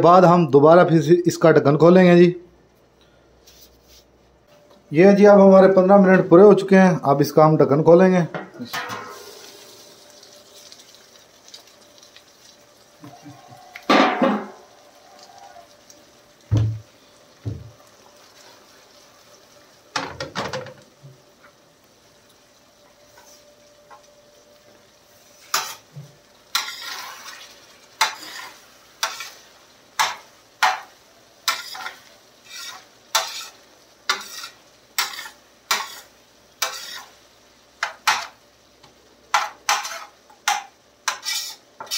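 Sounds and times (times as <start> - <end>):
metal clanks and thumps: 8.3 - 9.3, 13.9 - 14.6, 20.0 - 20.8
metal spatula scraping steel pan: 26.5 - 27.4, 28.0 - 29.4, 31.5 - 37.2, 39.4 - 41.9.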